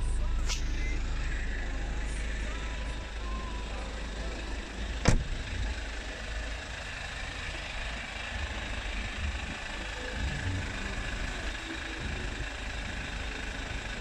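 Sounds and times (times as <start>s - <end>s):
car engine idling: 0.0s - 14.0s
car door shutting: 5.0s - 5.6s.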